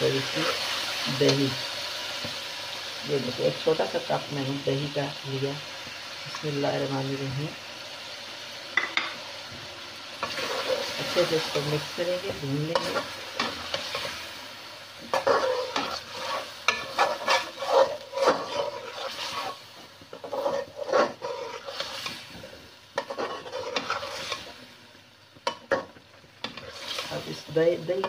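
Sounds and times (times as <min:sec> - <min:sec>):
food sizzling: 0:00.0 - 0:28.0
spoon scraping metal pot: 0:15.1 - 0:22.4, 0:23.0 - 0:24.5.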